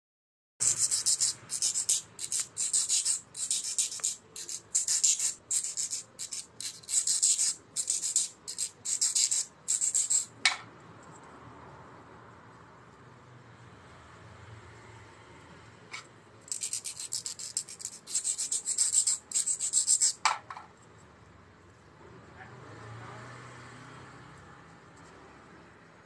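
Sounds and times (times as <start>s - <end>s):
nail file rasping: 0.6s - 10.4s, 16.5s - 20.2s.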